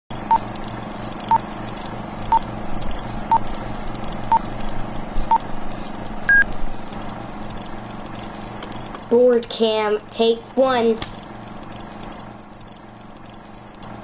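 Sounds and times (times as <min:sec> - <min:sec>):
hum with crackle and hiss: 0:00.1 - 0:14.0
countdown beeps: 0:06.3 - 0:06.5.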